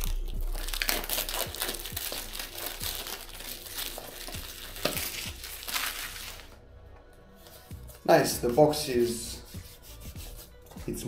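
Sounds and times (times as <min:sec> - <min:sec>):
plastic wrap tearing and crinkling: 0:00.0 - 0:06.6.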